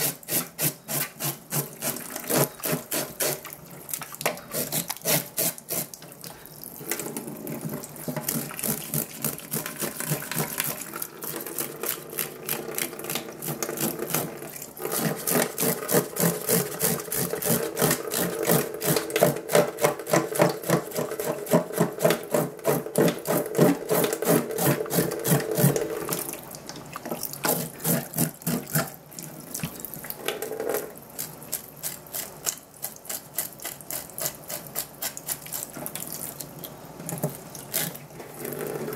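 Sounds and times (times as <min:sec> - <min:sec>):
fish being scraped: 0:00.0 - 0:03.6, 0:04.4 - 0:06.0, 0:08.0 - 0:12.6, 0:13.4 - 0:26.2, 0:27.4 - 0:29.0, 0:31.2 - 0:36.0, 0:37.6 - 0:38.9
tap water running into sink: 0:01.6 - 0:31.7, 0:35.6 - 0:38.9.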